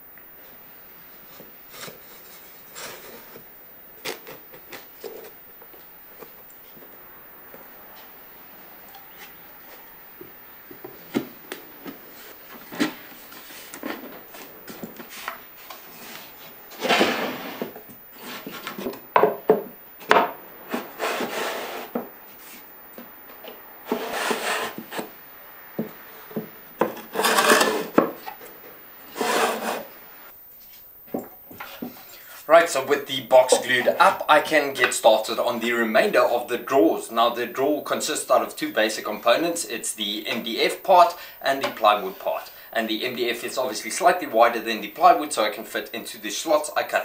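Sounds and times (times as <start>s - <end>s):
wooden drawers sliding: 27.1s - 28.0s, 29.2s - 29.9s.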